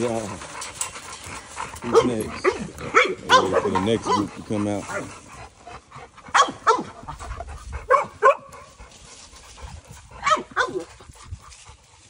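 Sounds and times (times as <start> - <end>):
dog barking: 1.8 - 4.3, 6.3 - 7.0, 7.9 - 8.6, 10.2 - 10.9.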